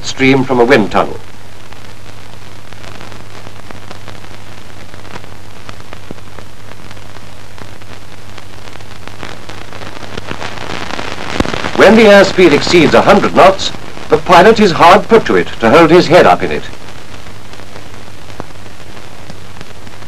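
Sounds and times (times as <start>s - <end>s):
faint crackles: 0.0s - 20.0s
steady hiss: 0.0s - 20.0s.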